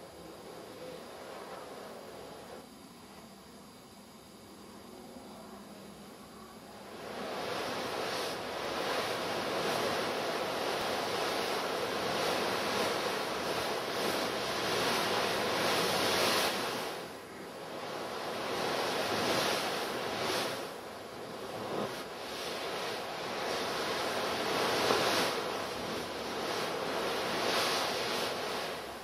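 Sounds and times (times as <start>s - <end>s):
dense rushing noise: 6.8s - 29.0s.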